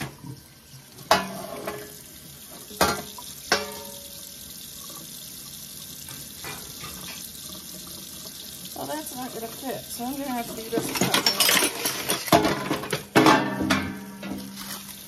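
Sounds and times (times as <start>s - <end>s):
metal baking sheet clanking: 1.1s - 1.9s, 10.6s - 14.8s.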